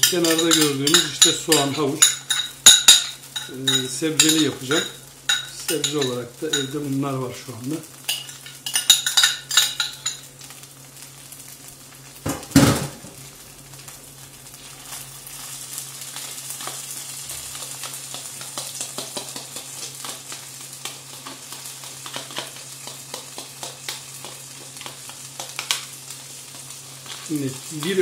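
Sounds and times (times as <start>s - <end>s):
spoon tapping and scraping colander: 0.0s - 6.8s, 8.1s - 10.2s
grains rushing into hot oil: 0.0s - 28.0s
grains sizzling in oil: 0.0s - 28.0s.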